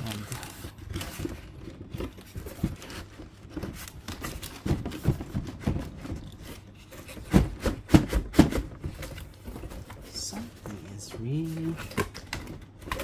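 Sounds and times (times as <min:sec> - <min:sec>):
cardboard rubbing and scraping: 0:00.0 - 0:13.0.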